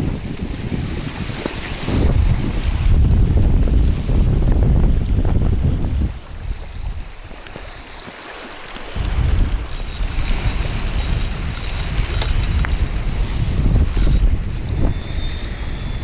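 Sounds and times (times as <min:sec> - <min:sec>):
wind buffeting microphone: 0:00.0 - 0:16.0
crackling rustle on microphone: 0:07.2 - 0:15.7.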